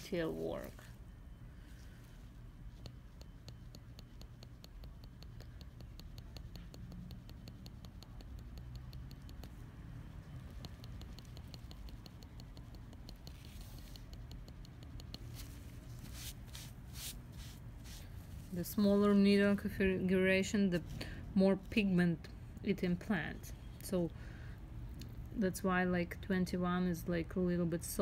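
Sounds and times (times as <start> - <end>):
tattoo needle ticking: 2.7 - 15.5.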